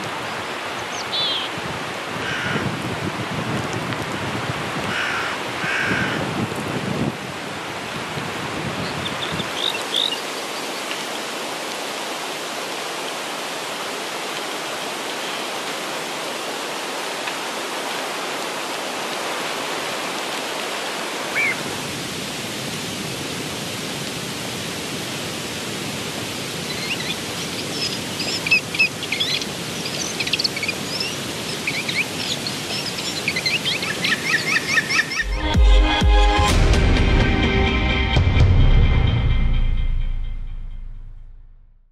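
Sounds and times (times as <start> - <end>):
small birds chirping: 8.8 - 11.0, 26.7 - 35.3.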